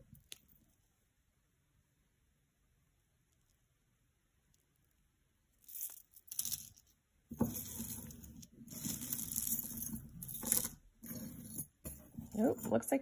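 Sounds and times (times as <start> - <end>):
chain links scraping across cloth: 5.7 - 12.8.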